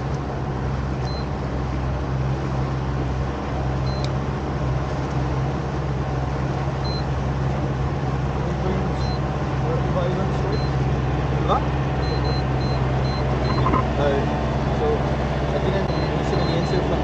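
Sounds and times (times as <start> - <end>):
boat engine humming: 0.0 - 17.0
water wash: 0.0 - 17.0
short high beeps: 12.0 - 13.9.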